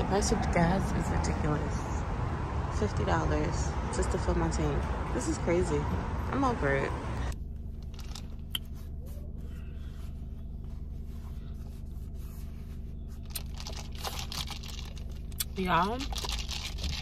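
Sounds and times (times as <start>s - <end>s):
plastic cup rustling: 7.8s - 8.5s, 13.1s - 17.0s.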